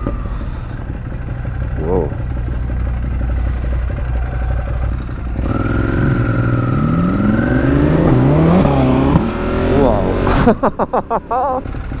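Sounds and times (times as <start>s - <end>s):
engine accelerating: 0.0s - 12.0s
motorcycle engine rumbling: 0.0s - 12.0s.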